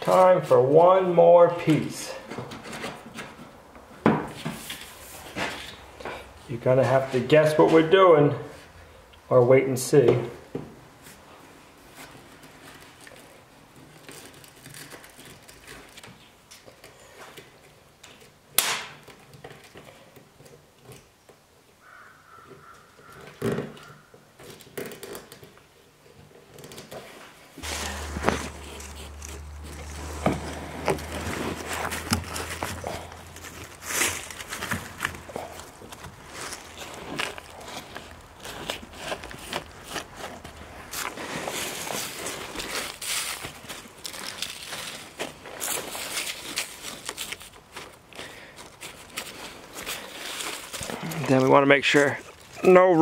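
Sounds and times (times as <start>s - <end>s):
paper towel rustling on pipe fitting: 26.6s - 53.0s
low steady hum: 27.6s - 39.8s.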